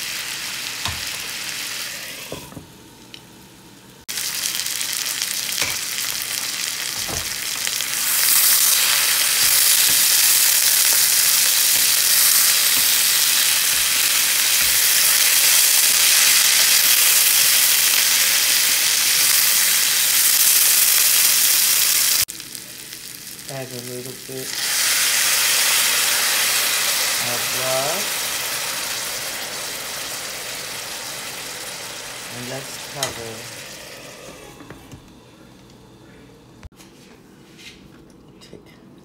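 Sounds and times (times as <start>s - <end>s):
vegetables sizzling in frying pan: 0.0s - 3.0s, 4.1s - 34.6s.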